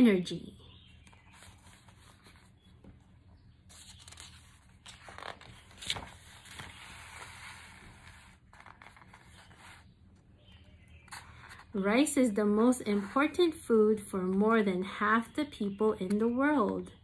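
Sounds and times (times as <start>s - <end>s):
book page turning: 1.0s - 3.0s, 3.6s - 10.0s, 11.0s - 11.8s.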